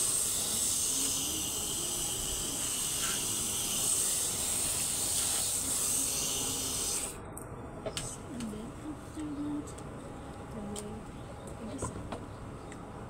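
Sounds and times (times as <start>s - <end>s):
hose nozzle spraying water on mesh: 0.0s - 7.0s.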